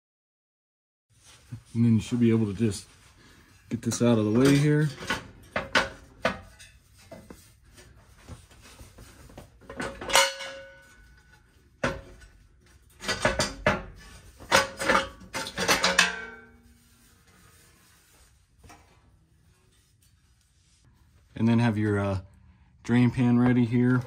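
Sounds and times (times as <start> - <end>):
metal shield clanking and scraping: 3.7 - 7.3, 9.6 - 17.0
metallic ring: 10.0 - 11.3.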